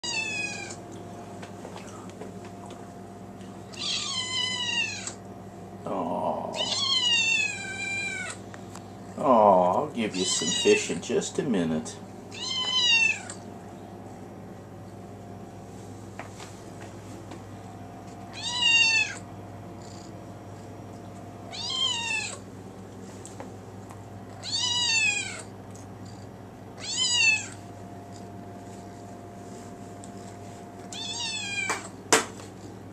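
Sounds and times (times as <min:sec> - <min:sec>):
kitten meowing: 0:00.0 - 0:00.8, 0:03.7 - 0:05.2, 0:06.6 - 0:08.4, 0:12.3 - 0:13.4, 0:18.3 - 0:19.2, 0:21.5 - 0:22.4, 0:24.4 - 0:25.5, 0:26.8 - 0:27.6, 0:30.9 - 0:31.9.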